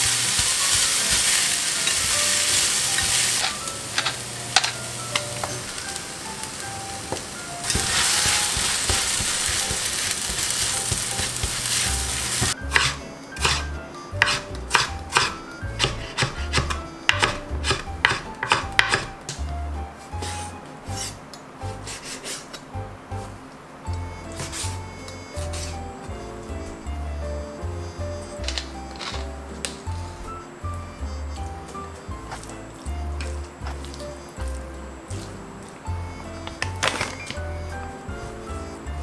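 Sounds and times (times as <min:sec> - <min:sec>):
food sizzling in a pan: 0:00.0 - 0:13.7
soft background music: 0:00.0 - 0:39.0
knife cutting meat on plastic board: 0:07.7 - 0:19.1, 0:24.3 - 0:24.8
knife chopping on wooden board: 0:07.7 - 0:19.2.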